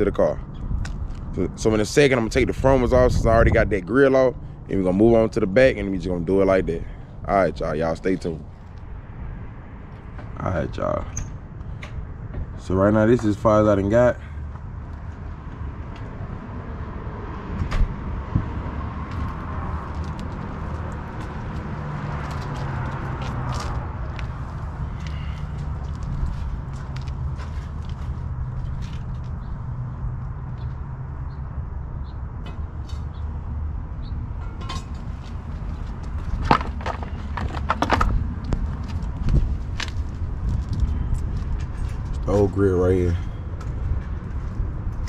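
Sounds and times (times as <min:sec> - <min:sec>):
steady low rumble: 0:00.0 - 0:45.0
wind on microphone: 0:02.4 - 0:03.9, 0:17.4 - 0:20.6, 0:38.0 - 0:42.2
sharp knocks and scuffs: 0:34.5 - 0:42.2
thumps: 0:36.2 - 0:38.2.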